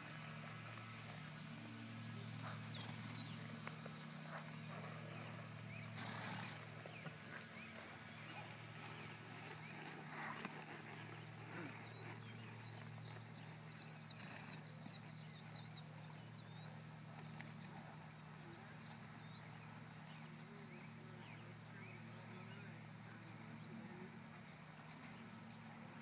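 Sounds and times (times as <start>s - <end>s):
bird chirping: 2.4s - 17.6s.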